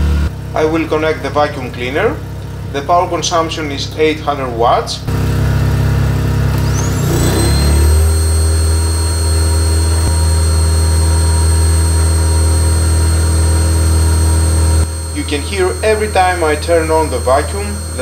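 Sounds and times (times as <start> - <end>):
generator engine speeding up: 5.0 - 18.0
vacuum cleaner motor whine: 5.2 - 18.0.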